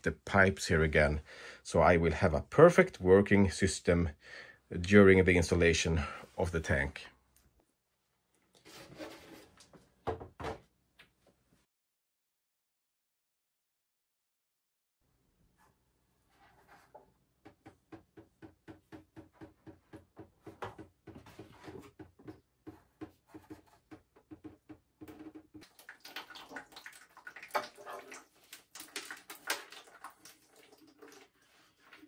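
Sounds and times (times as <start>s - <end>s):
water dripping into plastic bucket: 25.0s - 32.0s.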